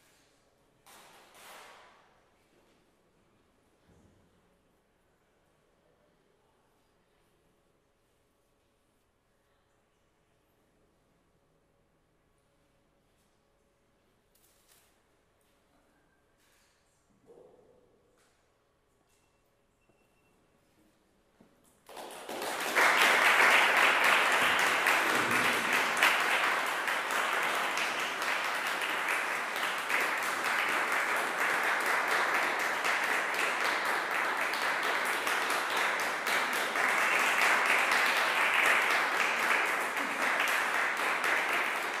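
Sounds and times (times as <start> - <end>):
audience applauding: 21.9 - 42.0.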